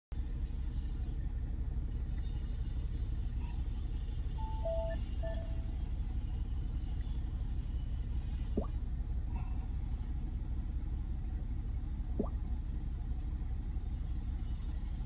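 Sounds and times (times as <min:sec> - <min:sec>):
car engine idling rumble: 0:00.2 - 0:15.0
electronic chime beeps: 0:04.4 - 0:05.7.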